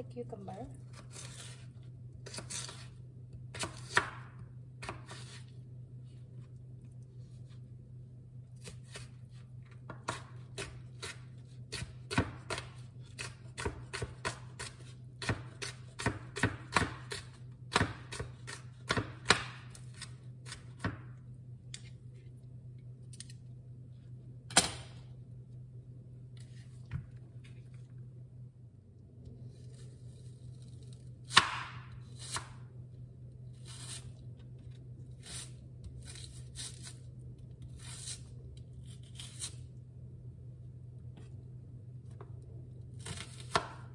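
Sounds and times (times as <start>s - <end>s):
knife chopping on wooden board: 3.5s - 5.4s, 9.9s - 21.2s, 31.3s - 32.6s, 43.0s - 43.9s.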